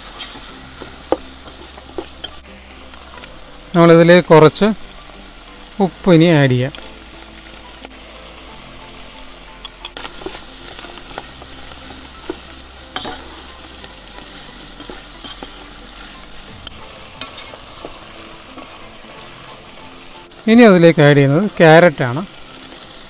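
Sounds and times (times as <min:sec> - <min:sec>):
food sizzling in a pot: 0:00.0 - 0:23.0
spatula scraping a pan: 0:12.2 - 0:13.5, 0:14.7 - 0:16.2, 0:17.2 - 0:18.0.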